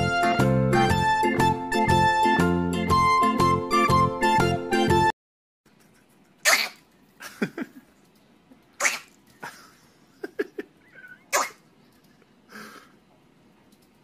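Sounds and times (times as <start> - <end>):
pet sneezing: 6.4 - 6.8, 8.8 - 9.2, 11.3 - 11.6.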